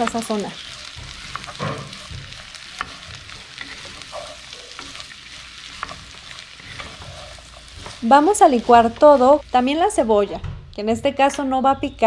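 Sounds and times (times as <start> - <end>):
wooden spatula scraping: 0.0 - 10.3
vegetables sizzling in oil: 0.0 - 10.4
spatula knocking on pot: 0.8 - 5.0.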